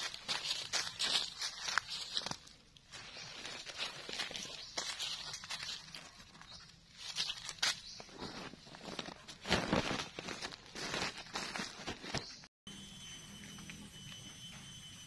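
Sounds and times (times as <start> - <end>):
plastic sack rustling: 7.0 - 12.4.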